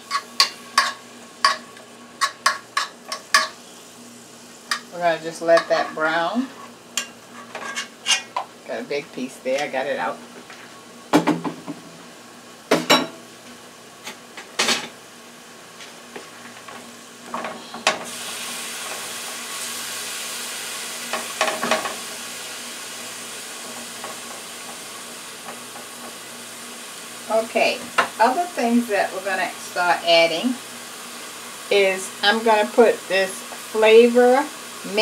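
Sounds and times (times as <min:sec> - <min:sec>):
spatula scraping and tapping pan: 0:00.0 - 0:03.6, 0:05.5 - 0:08.5
onions sizzling in a pan: 0:00.0 - 0:35.0.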